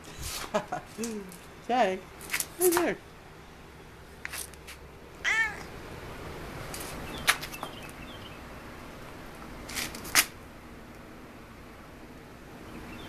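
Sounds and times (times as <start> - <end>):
cat meowing: 5.2 - 5.7.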